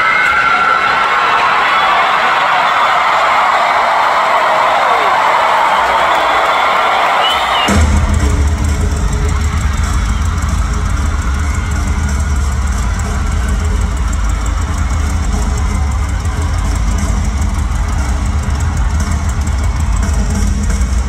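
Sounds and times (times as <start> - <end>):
drums: 0.0 - 21.0
heavy low rumble: 7.7 - 21.0.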